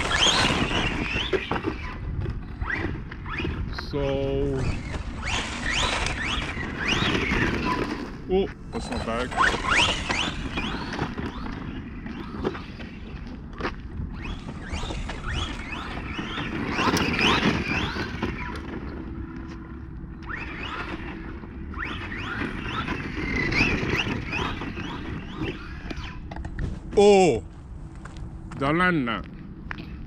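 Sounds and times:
electric motor whine: 0:04.6 - 0:26.7.

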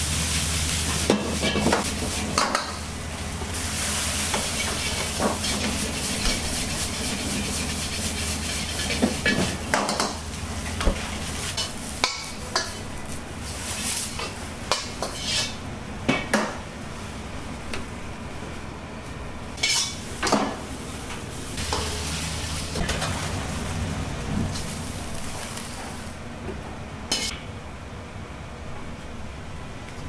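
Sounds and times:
food sizzling: 0:00.0 - 0:02.9, 0:03.6 - 0:10.4, 0:21.6 - 0:23.8, 0:24.5 - 0:26.2
metal ladle scraping a wok: 0:04.6 - 0:09.5, 0:14.9 - 0:15.6, 0:19.6 - 0:20.0.

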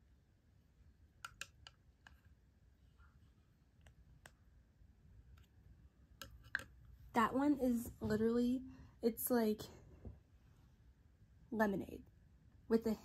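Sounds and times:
plastic spoon tapping plastic: 0:01.2 - 0:02.3, 0:06.2 - 0:06.8.

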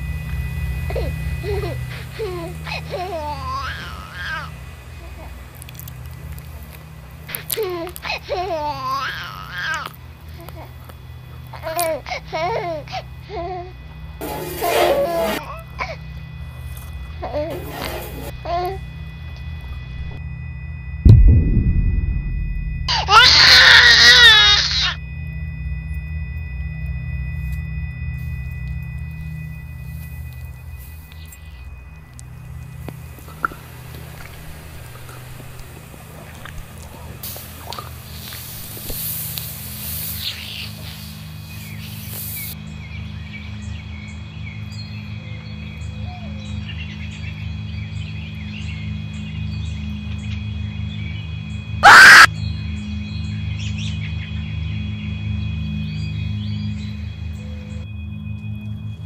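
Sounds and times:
high-pitched wavering wail: 0:00.0 - 0:05.2, 0:11.6 - 0:35.0, 0:51.8 - 0:52.3
electrical hum: 0:00.0 - 0:59.0
deep thump: 0:21.1 - 0:23.1
birds chirping: 0:39.9 - 0:57.9.

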